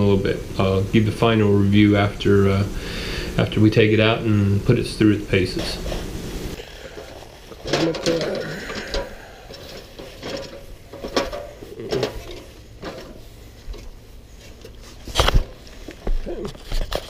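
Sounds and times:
metal ladder clanking and creaking: 6.9s - 14.0s.

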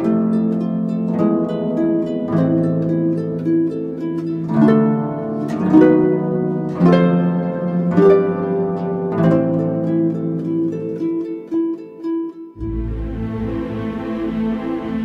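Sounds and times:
plucked harp-like strings music: 0.0s - 15.0s.

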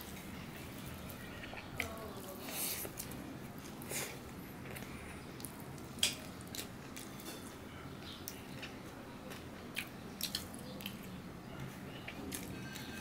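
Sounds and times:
low background hum: 0.0s - 13.0s
mouth chewing: 8.0s - 12.9s.

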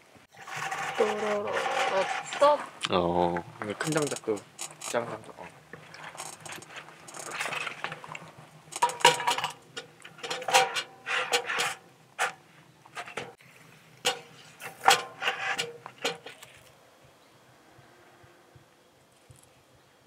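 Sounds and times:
logs clanking in steel stove: 0.3s - 2.7s, 3.4s - 13.4s, 14.0s - 16.5s.

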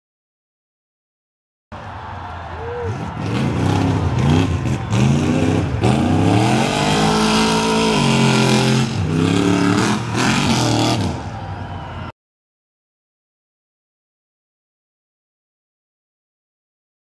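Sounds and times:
truck engine revving: 2.8s - 11.5s.

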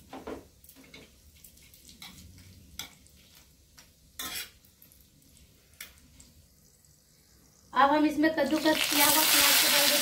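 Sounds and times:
spices sizzling in hot ghee: 0.4s - 10.0s
metal spatula scraping pan: 4.2s - 4.6s.

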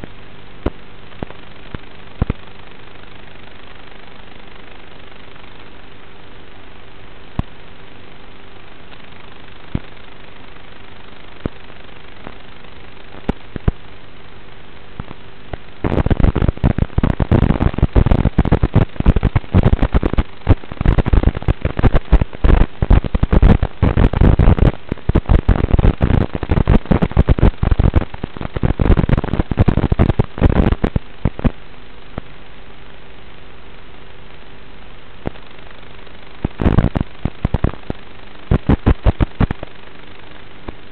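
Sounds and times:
crackling and popping static: 0.0s - 40.9s
receiver hiss with faint hum: 0.0s - 40.9s.

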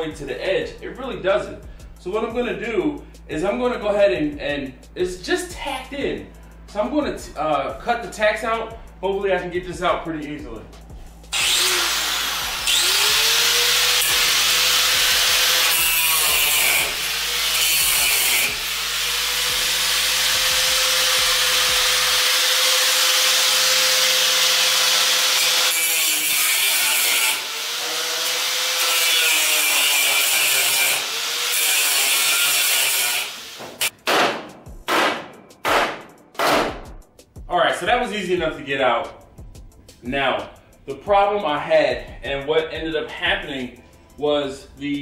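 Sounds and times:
power saw cutting steel: 11.3s - 33.9s.

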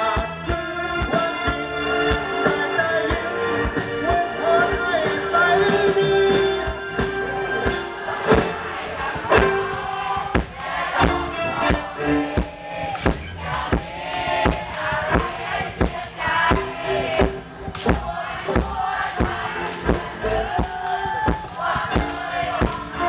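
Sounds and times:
man singing into microphone: 0.0s - 7.0s
bass guitar: 0.0s - 23.0s
drum kit steady beat: 0.0s - 23.0s.

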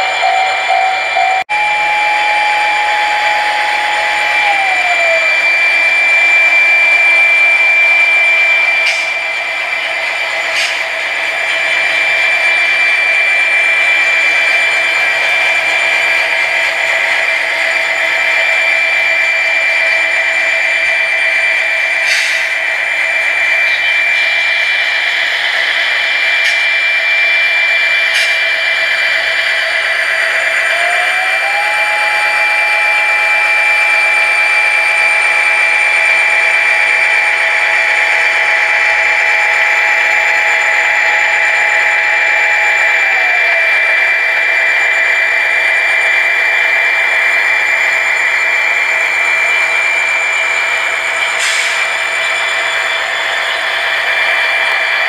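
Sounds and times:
tone climbing in pitch: 0.0s - 10.5s
diesel engine sound with high whine: 0.0s - 55.0s.

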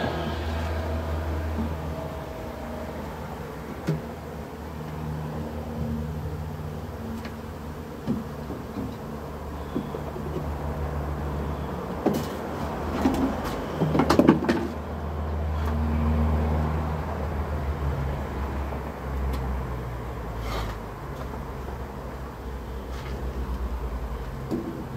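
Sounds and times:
honeybees buzzing: 0.0s - 14.0s
wooden hive boxes knocking: 8.0s - 10.6s.

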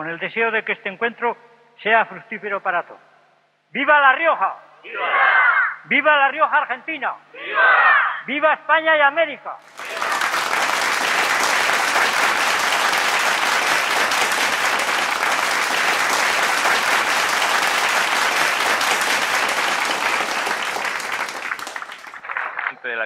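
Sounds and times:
crowd applauding: 9.7s - 22.8s.

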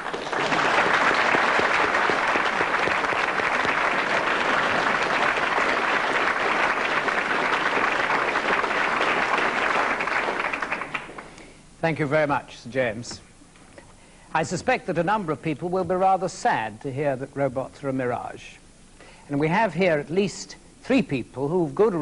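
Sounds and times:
large audience applauding: 0.0s - 11.4s.

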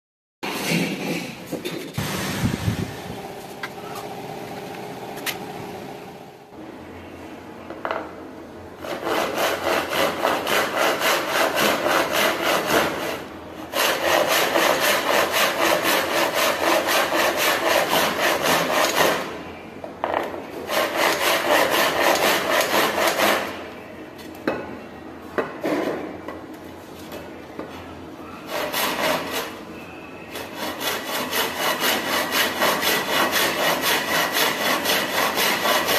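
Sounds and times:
hand saw cutting wood: 8.8s - 19.3s, 20.6s - 23.6s, 28.5s - 29.6s, 30.3s - 35.9s.

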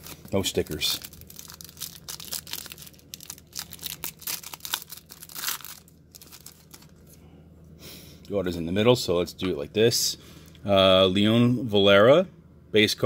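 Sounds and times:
plastic wrapper crinkling: 0.0s - 7.2s.

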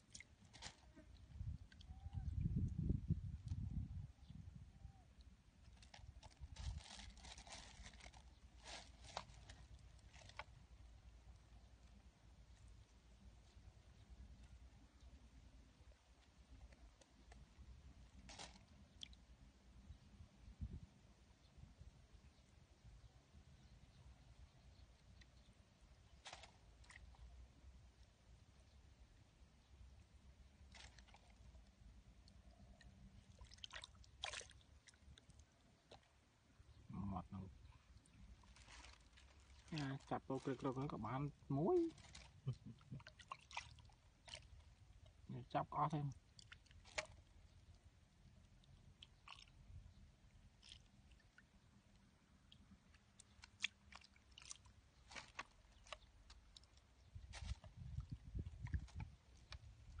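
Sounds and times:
low sloshing water: 30.1s - 36.9s, 41.3s - 45.3s, 46.1s - 60.0s
hand splashing in muddy water: 41.8s - 44.6s, 49.1s - 49.6s
hand squelching through mud: 41.8s - 44.6s, 46.3s - 47.4s, 49.0s - 49.6s, 53.0s - 60.0s.

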